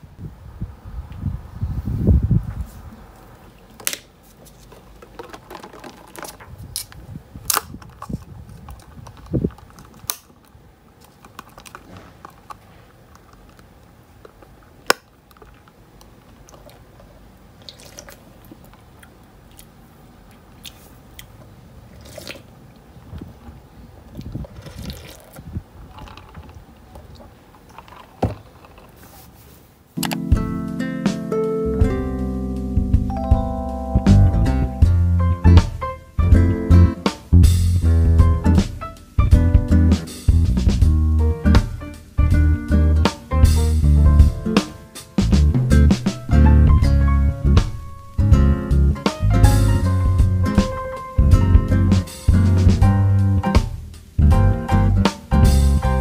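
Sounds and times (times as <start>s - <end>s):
light crinkles: 2.5s - 30.0s
book pages flipping: 3.8s - 6.9s, 27.7s - 30.2s.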